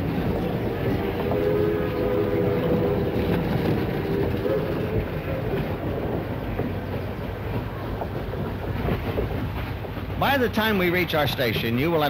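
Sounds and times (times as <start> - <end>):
steam train wheels rumbling and rattling: 0.0 - 12.0.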